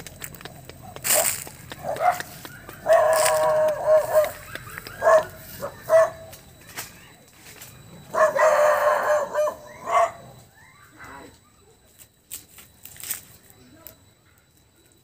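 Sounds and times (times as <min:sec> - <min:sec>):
rooster crowing: 0:02.0 - 0:05.3.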